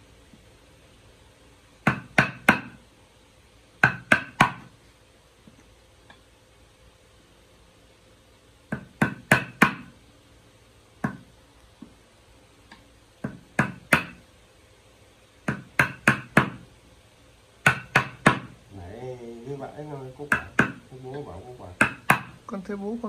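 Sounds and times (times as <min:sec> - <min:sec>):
hammer striking chisel: 0:01.8 - 0:02.8, 0:03.8 - 0:04.7, 0:08.7 - 0:09.9, 0:13.2 - 0:14.2, 0:15.4 - 0:16.6, 0:17.6 - 0:18.5, 0:20.3 - 0:20.8, 0:21.8 - 0:22.4.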